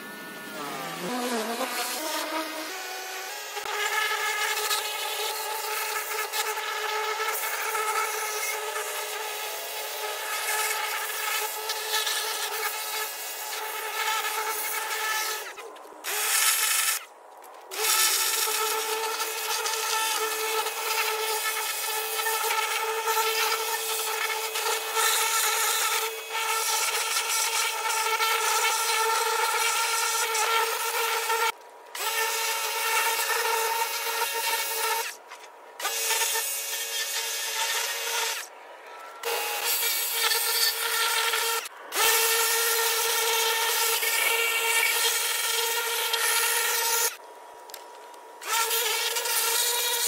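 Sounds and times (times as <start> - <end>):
machine whine: 0.0 - 2.0.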